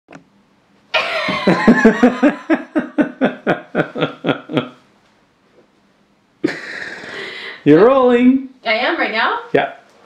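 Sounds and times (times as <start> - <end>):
woman laughing: 1.0 - 4.8, 6.4 - 7.3.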